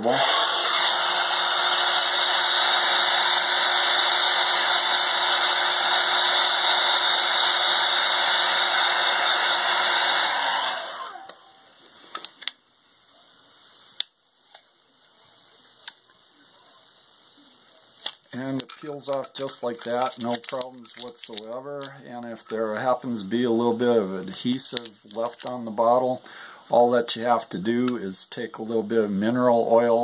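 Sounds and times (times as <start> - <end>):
hair dryer blowing: 0.0 - 12.2.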